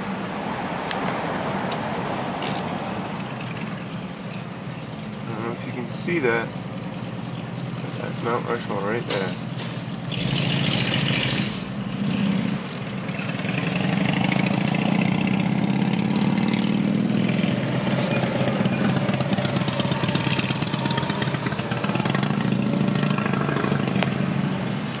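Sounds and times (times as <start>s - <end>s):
road and wind noise: 0.0s - 25.0s
vehicle engine humming: 0.0s - 25.0s.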